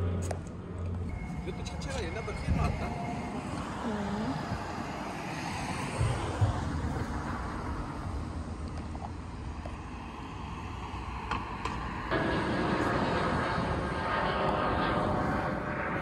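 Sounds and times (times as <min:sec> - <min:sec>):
faint whine: 0:00.0 - 0:16.0.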